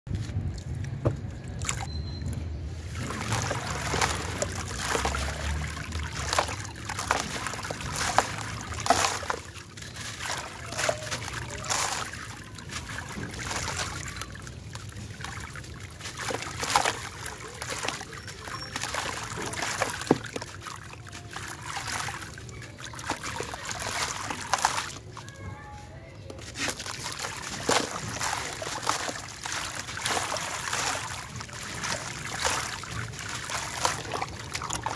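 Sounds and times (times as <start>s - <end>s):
grit trickling into water: 0.2s - 34.9s
cement chunk crunching: 2.9s - 25.5s, 26.3s - 34.9s.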